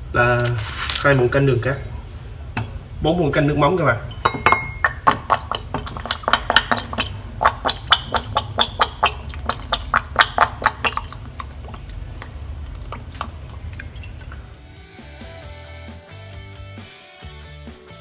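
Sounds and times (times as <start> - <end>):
sauce dripping and splashing into bowl: 4.2 - 14.7.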